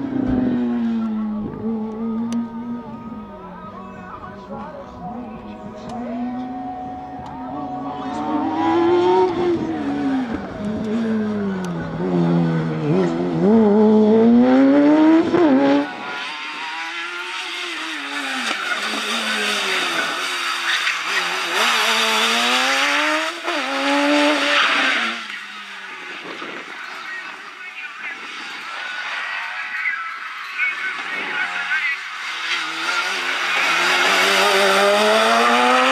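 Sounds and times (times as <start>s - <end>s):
car engine revving hard: 8.0s - 25.3s, 32.4s - 35.9s.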